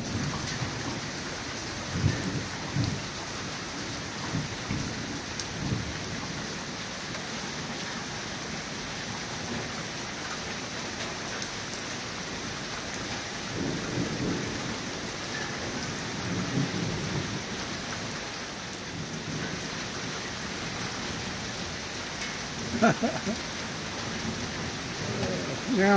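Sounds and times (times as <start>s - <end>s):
steady rain falling: 0.0s - 25.9s
thunder rumbling: 13.5s - 17.8s, 22.6s - 25.9s.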